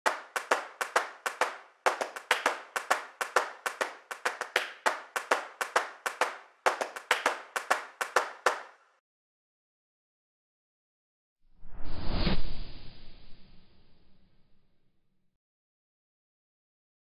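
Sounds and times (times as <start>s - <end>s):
clap-like percussion hits: 0.0s - 8.8s.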